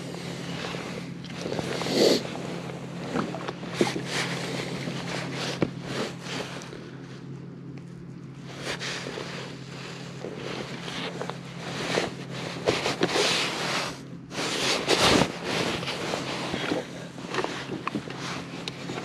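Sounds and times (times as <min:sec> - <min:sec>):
steady low hum: 0:00.0 - 0:19.0
knocks and rustles from handling gear: 0:10.3 - 0:13.6.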